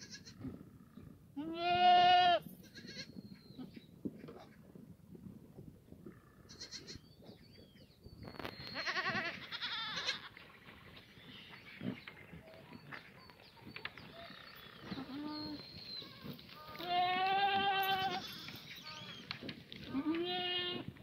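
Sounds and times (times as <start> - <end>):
goats bleating: 1.4 - 3.1, 8.8 - 10.4, 16.6 - 19.2, 19.9 - 20.8.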